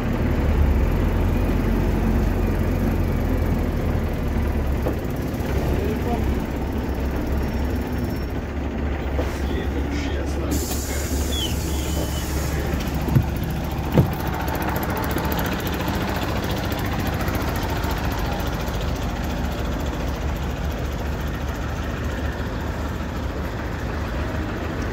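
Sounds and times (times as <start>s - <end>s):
bus engine idling: 0.0s - 24.9s
short knocks: 12.9s - 14.4s.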